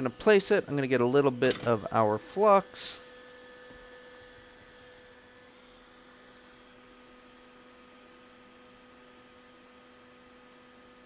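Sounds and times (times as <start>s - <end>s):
high electrical tone: 0.0s - 5.4s.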